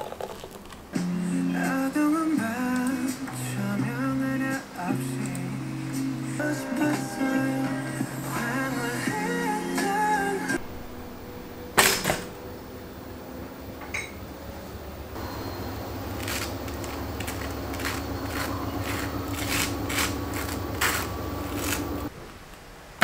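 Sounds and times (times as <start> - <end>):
low steady hum: 10.6 - 22.1
knife scraping toast: 16.2 - 22.1.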